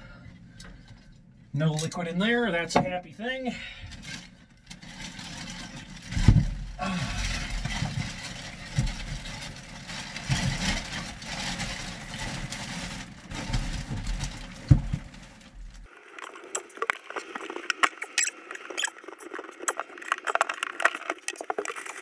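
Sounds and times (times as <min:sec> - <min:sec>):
plastic garbage bag rustling: 0:03.9 - 0:16.0
dull knocks and thumps: 0:06.1 - 0:06.7, 0:13.4 - 0:15.8.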